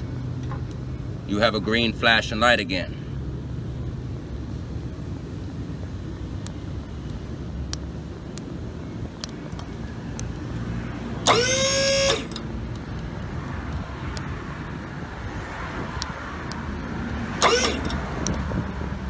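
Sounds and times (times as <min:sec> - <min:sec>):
hydraulic pump motor whine: 0:11.2 - 0:12.5, 0:17.4 - 0:18.0.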